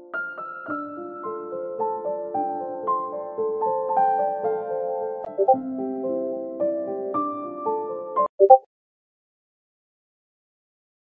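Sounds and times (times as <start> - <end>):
soft keyboard notes: 5.3 - 5.7.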